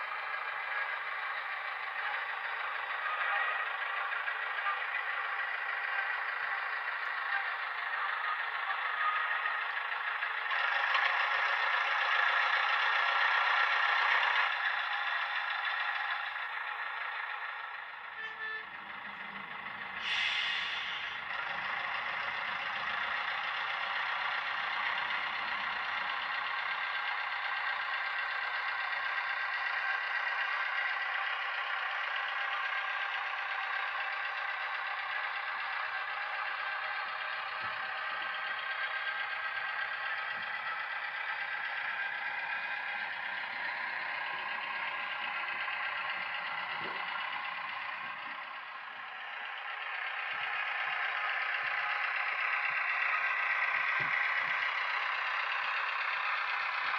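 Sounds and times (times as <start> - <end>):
model train engine running: 0.0 - 56.9
short hiss: 20.0 - 21.2.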